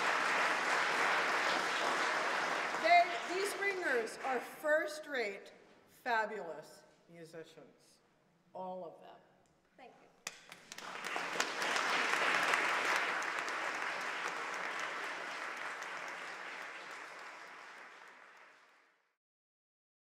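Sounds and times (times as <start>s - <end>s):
audience applauding: 0.0s - 4.6s, 10.3s - 19.1s.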